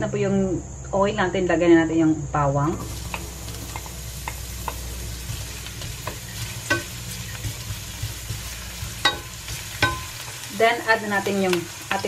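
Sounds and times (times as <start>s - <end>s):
onion sizzling in oil: 2.7s - 12.0s
spatula knocking against pan: 3.1s - 10.2s.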